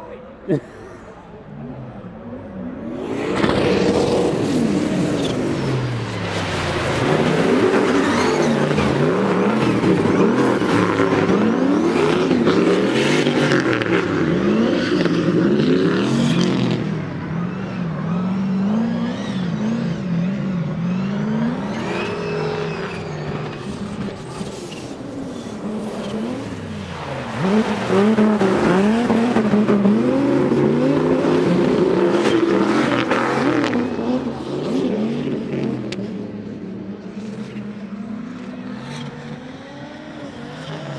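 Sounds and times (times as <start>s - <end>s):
car engines revving: 0.0s - 40.9s.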